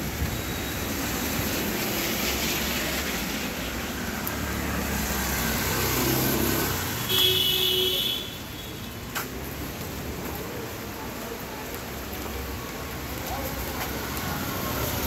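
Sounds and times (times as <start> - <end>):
steady rain: 0.0 - 15.0
tyres hissing on wet road: 0.0 - 15.0.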